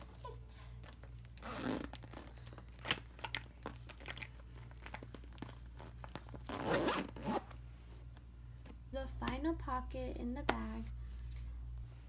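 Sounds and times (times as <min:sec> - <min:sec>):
plastic pocket crinkling: 0:00.9 - 0:06.7.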